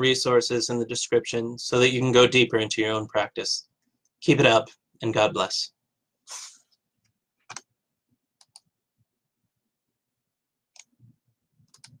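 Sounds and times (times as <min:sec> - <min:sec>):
computer mouse clicks: 0:07.4 - 0:07.7, 0:08.4 - 0:08.7, 0:10.7 - 0:12.0.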